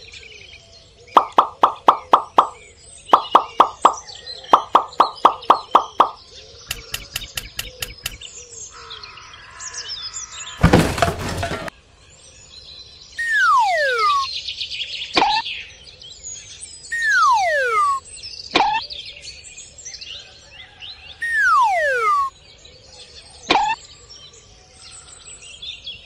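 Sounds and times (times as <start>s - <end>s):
birds chirping and whistling: 0.1s - 8.9s, 12.5s - 20.0s, 21.2s - 22.6s
quick run of clicks: 3.2s - 8.2s.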